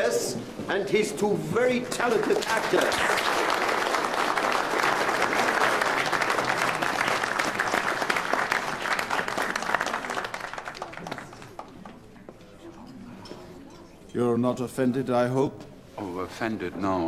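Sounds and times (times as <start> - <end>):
audience applauding: 2.0 - 11.9.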